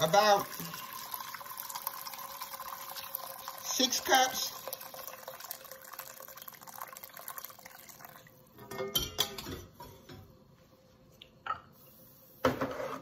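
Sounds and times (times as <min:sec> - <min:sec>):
broth splashing into a pot: 0:00.0 - 0:09.1.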